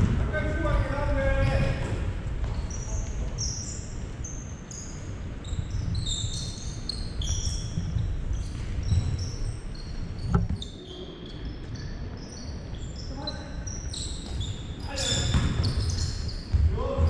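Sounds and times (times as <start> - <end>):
sneakers squeaking on hardwood: 0.0 - 11.0, 11.6 - 16.7
ball dribbling: 15.1 - 15.9.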